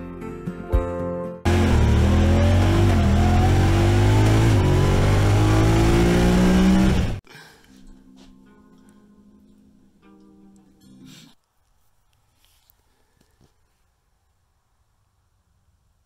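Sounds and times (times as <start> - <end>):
utility vehicle engine accelerating: 1.5 - 7.2.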